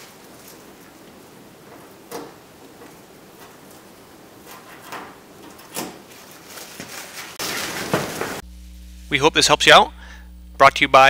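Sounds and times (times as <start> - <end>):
plastic film peeling crackle: 6.0 - 8.4.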